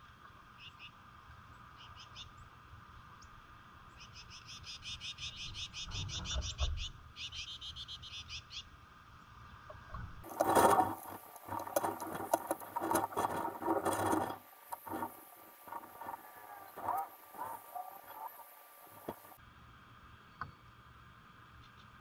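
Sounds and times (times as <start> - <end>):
songbird chattering trill: 4.0 - 8.6
scratchy jumble of clicks and chirps: 10.2 - 19.4.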